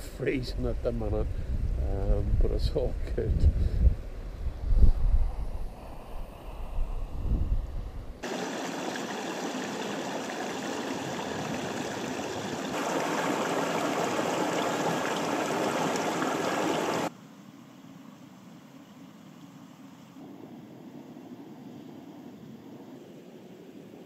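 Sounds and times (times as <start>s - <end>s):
stream splashing over boulders: 8.2s - 17.1s.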